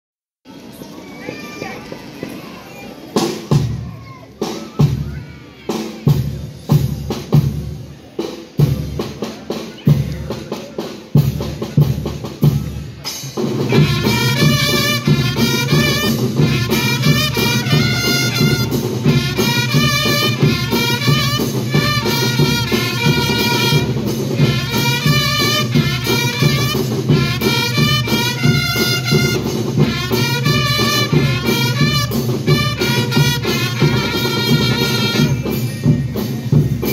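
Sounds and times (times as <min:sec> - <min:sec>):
marching drums: 0:03.1 - 0:36.9
brass playing a march: 0:13.5 - 0:35.7.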